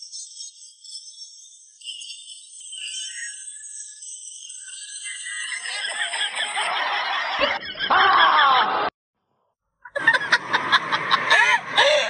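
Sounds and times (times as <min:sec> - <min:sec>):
snickering chuckle: 0:05.7 - 0:08.1, 0:09.9 - 0:12.0.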